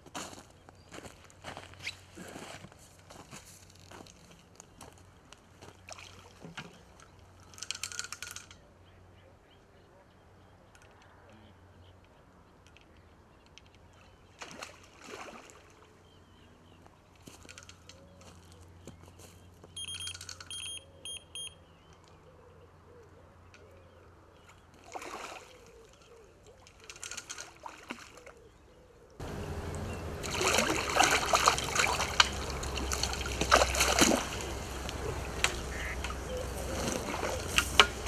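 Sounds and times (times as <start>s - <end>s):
fish splashing in water: 14.4s - 15.9s, 24.8s - 26.0s, 30.2s - 38.0s
electronic beeps: 19.8s - 21.6s.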